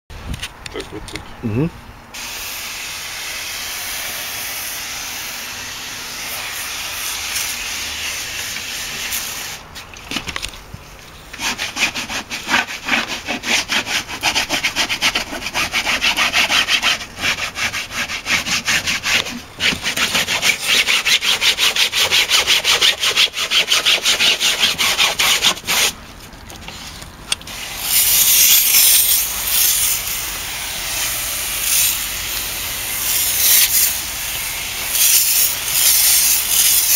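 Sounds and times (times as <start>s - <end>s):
pressure sprayer hissing: 2.2s - 9.6s, 27.5s - 36.9s
scrubber rubbing fabric: 11.4s - 26.0s.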